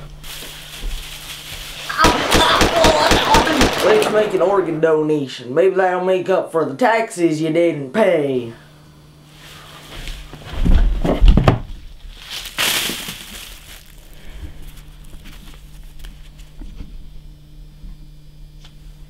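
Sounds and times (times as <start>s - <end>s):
crinkling and rustling: 0.0s - 1.9s, 9.4s - 16.5s
loud crunching: 0.2s - 5.0s, 12.2s - 14.2s.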